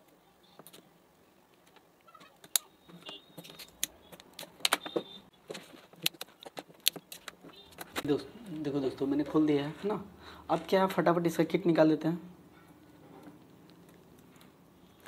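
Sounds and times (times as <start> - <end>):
plastic clicks and snaps: 6.0 - 8.1.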